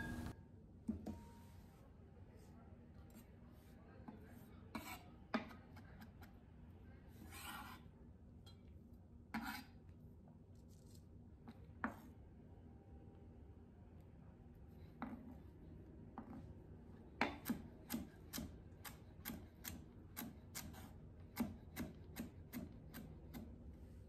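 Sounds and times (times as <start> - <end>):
knife scraping cutting board: 4.4 - 6.1, 7.1 - 7.9, 9.3 - 9.8, 20.2 - 21.0.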